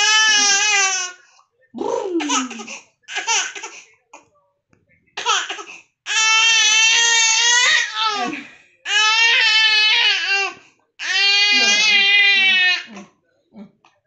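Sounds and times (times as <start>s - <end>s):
baby crying: 0.0s - 1.2s, 2.1s - 3.7s, 5.2s - 13.0s.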